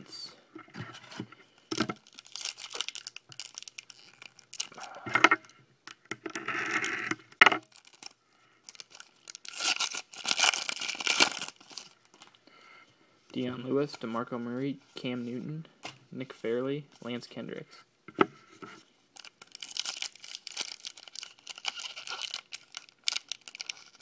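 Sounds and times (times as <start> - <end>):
foil wrapper crinkling and tearing: 1.8 - 5.4, 7.6 - 12.4, 19.2 - 24.0.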